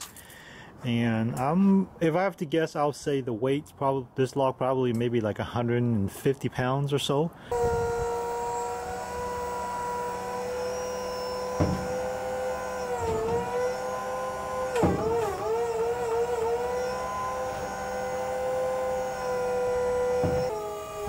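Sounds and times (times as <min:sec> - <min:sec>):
electric motor whining: 0:07.5 - 0:21.0.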